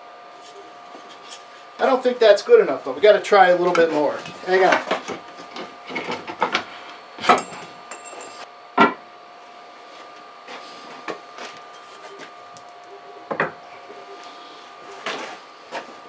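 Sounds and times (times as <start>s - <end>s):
electrical hum: 0.0s - 16.0s.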